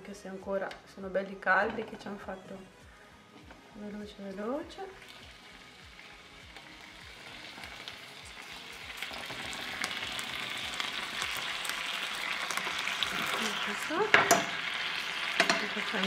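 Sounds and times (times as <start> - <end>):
meat sizzling in a pan: 4.4 - 16.0.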